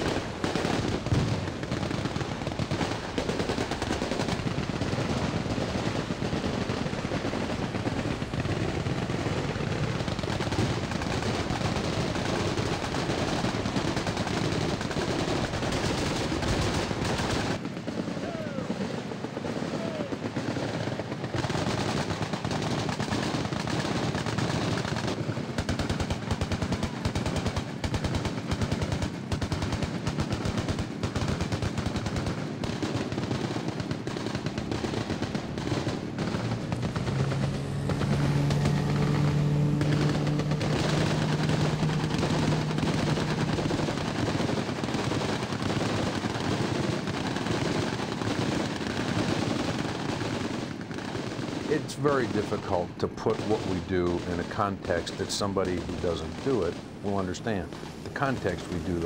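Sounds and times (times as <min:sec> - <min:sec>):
machine-gun fire: 0:00.0 - 0:59.0
low steady drone: 0:34.6 - 0:46.2.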